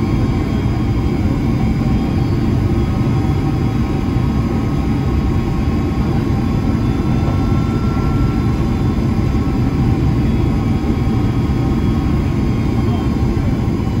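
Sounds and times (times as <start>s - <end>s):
jet engine and airflow rumble: 0.0s - 14.0s
faint whine tones: 4.7s - 14.0s.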